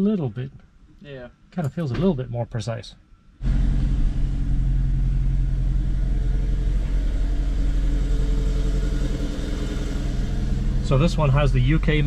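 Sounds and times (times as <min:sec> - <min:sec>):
car engine idling: 0:03.4 - 0:12.0.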